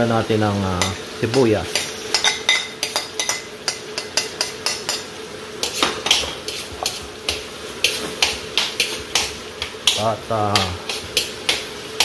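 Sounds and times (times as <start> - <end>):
oil sizzling faintly: 0.0 - 12.0
metal spoon scraping a plate and wok: 1.7 - 7.1.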